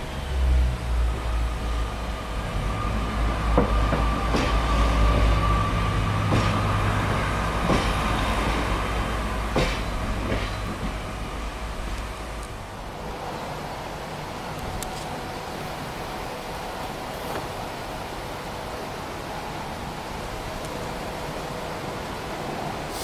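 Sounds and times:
wheels clicking over rail joints: 6.0 - 12.8.

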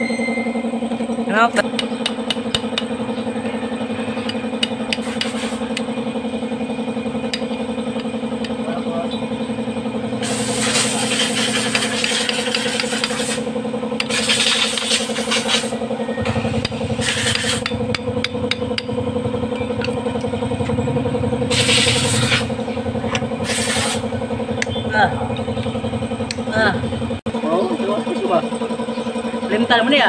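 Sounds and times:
engine idling: 0.3 - 30.0
metal tools scraping and tapping: 11.5 - 13.4.

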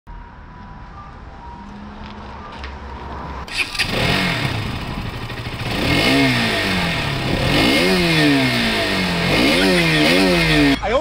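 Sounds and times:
motor engine revving: 3.5 - 10.8.

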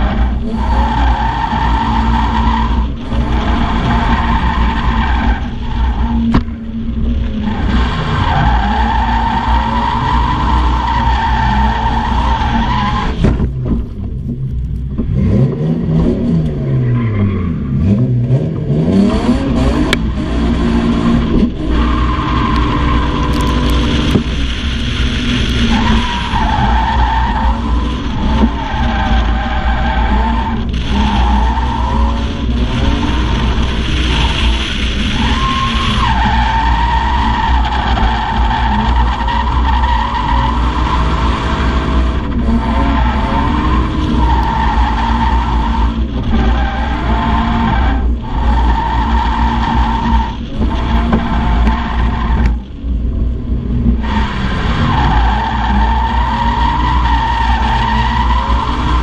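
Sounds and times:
car engine revving hard: 15.0 - 52.7, 53.3 - 59.0.

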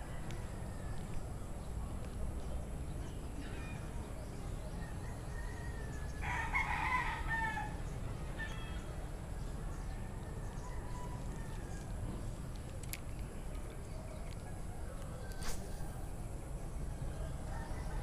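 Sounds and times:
rooster crowing: 5.2 - 7.8.

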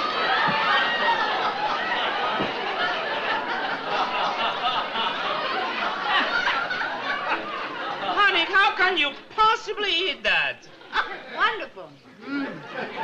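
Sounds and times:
studio audience laughing: 0.0 - 8.4, 12.5 - 13.0.

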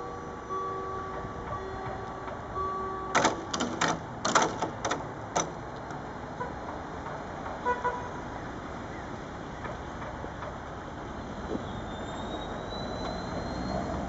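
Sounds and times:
barrier grilles rattling: 1.1 - 7.6
sharp clattering knocks: 3.1 - 7.7.

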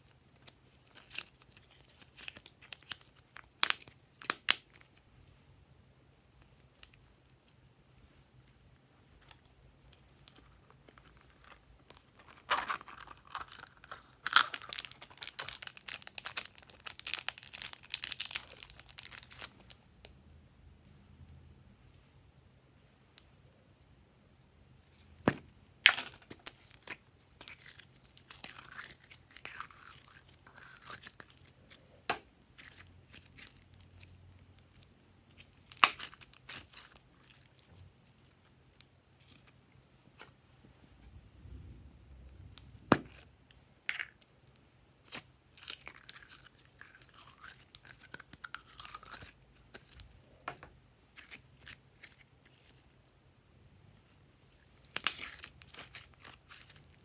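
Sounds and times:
slime crackling and popping: 0.4 - 5.0, 11.2 - 19.8, 34.7 - 39.5, 45.0 - 50.1, 54.9 - 57.0.

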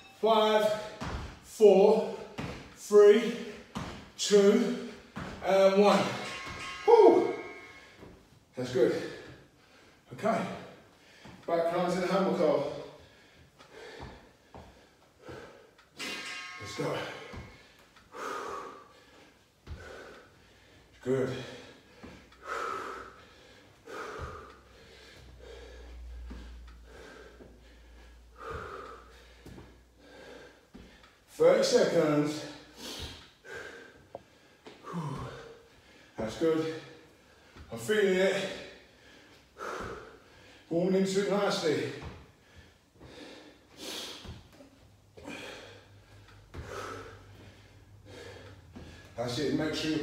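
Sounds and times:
feet thudding on rubber floor: 0.8 - 1.4, 2.2 - 2.8, 3.4 - 4.2, 5.0 - 5.5
man breathing hard: 10.8 - 11.5, 12.8 - 16.5, 17.2 - 31.3, 32.4 - 40.7, 41.6 - 44.6, 45.2 - 49.2.

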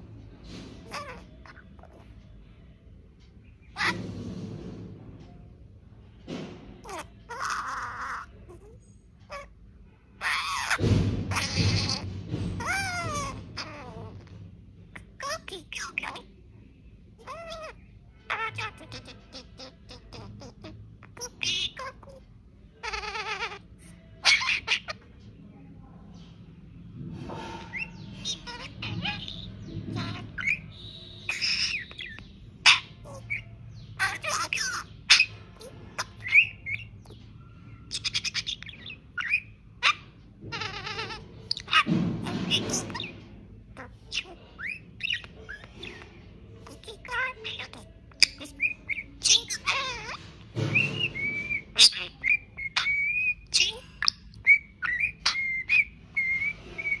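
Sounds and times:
budgerigar warbling and chirping: 0.8 - 2.1, 3.4 - 4.0, 6.8 - 9.6, 10.2 - 16.3, 17.1 - 25.2, 27.2 - 57.0
budgerigar whistling: 47.1 - 57.0.

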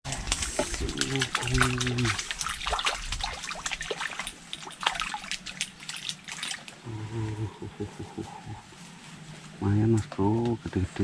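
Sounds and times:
water splashing and dripping: 0.1 - 6.9
man humming: 6.9 - 8.7.

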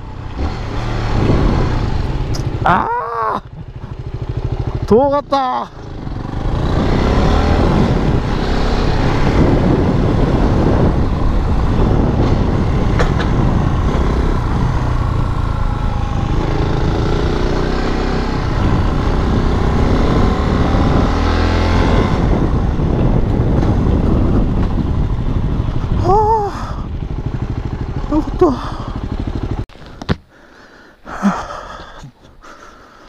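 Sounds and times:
motorcycle engine running: 0.0 - 30.2.

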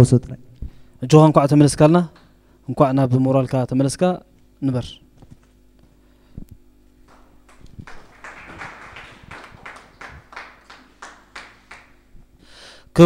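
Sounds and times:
people clapping: 7.0 - 12.2.

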